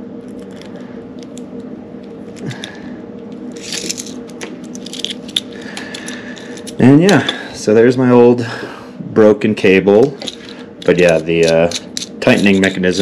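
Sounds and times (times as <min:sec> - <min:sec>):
lace cable ticking and scraping: 0:10.2 - 0:13.0.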